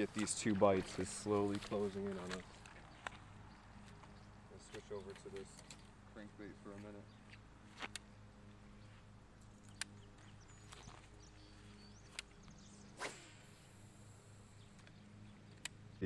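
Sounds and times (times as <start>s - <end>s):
fishing line whirring out: 10.4s - 14.9s
fishing rod swish: 12.9s - 13.8s.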